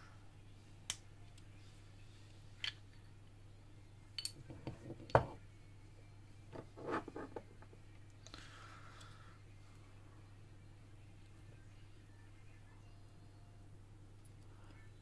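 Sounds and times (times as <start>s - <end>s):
faint steady hum: 0.0s - 15.0s
metallic clicks of lock parts: 4.2s - 5.2s.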